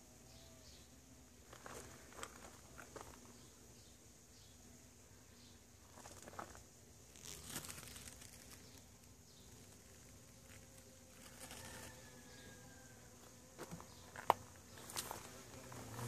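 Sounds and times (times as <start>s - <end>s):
soft leaf rustles: 5.8s - 16.0s.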